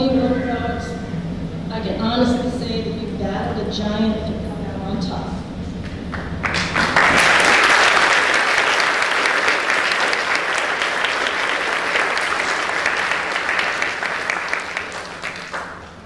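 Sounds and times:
audience applauding: 0:06.1 - 0:16.0.

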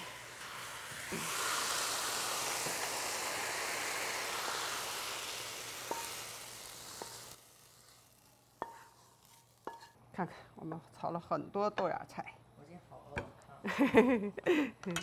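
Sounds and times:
hot wok sizzling: 0:00.0 - 0:10.0.

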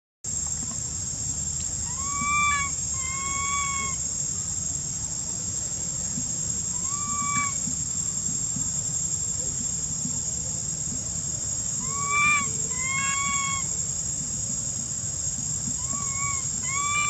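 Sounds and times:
high insect drone: 0:00.3 - 0:17.0
baby monkey coo calls: 0:01.8 - 0:04.1, 0:06.8 - 0:07.7, 0:11.8 - 0:13.8, 0:15.8 - 0:17.0.

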